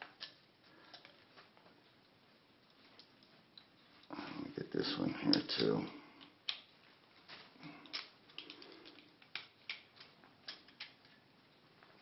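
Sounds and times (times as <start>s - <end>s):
small metal clicks and ticks: 0.0s - 6.8s, 7.6s - 12.0s.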